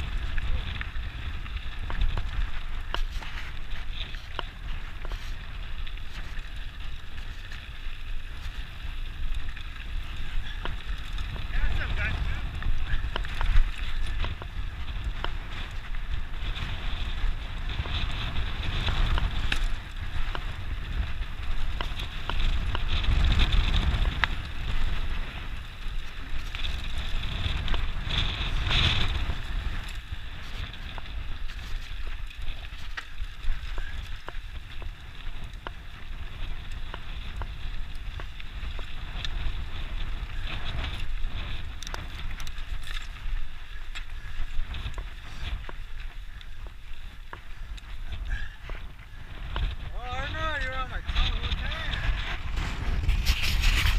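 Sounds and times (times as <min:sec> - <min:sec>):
bike clicks and knocks: 0:00.0 - 0:48.8
bike tyres on dirt: 0:00.0 - 0:53.9
wind rumbling on microphone: 0:00.0 - 0:53.9.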